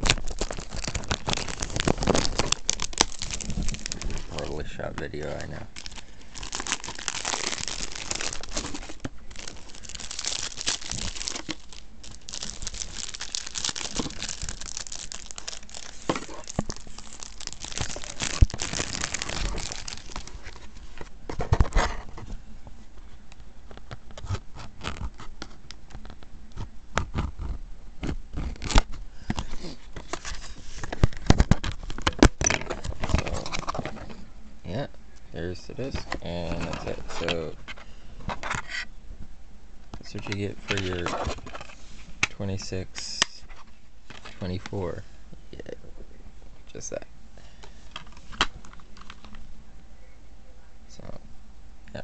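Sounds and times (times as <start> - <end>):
plastic wrapping crinkling and tearing: 0.0 - 21.6, 40.2 - 41.7.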